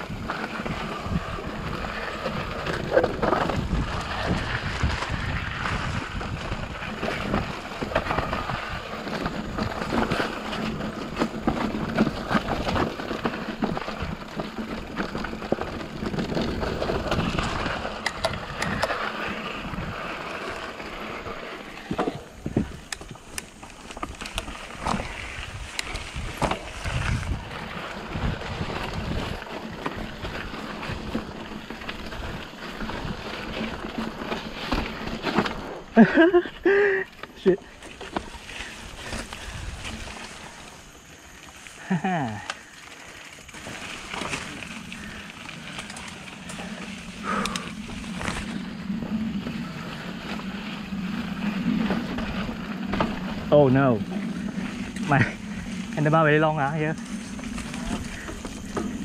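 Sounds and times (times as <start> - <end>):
wind rushing over microphone: 0.0 - 10.9, 15.7 - 34.0
bike clattering over bumps: 0.0 - 59.0
tyres hissing over dirt: 33.5 - 59.0.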